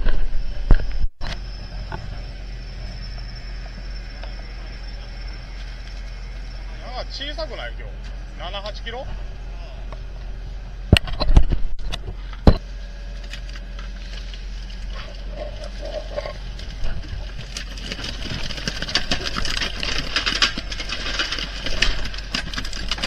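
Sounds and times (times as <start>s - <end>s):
boat engine humming: 1.3s - 11.0s.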